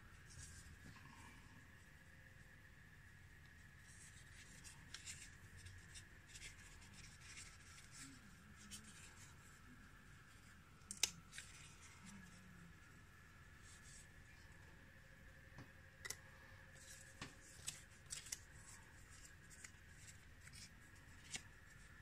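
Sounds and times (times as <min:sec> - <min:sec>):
paper and tissue rustling: 0:03.6 - 0:14.6, 0:16.7 - 0:22.0.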